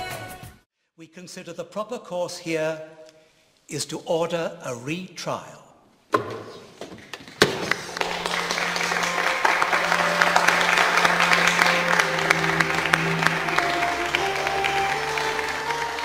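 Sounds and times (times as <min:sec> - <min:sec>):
crowd clapping and cheering: 0:07.0 - 0:16.0
orchestral film score: 0:07.8 - 0:16.0.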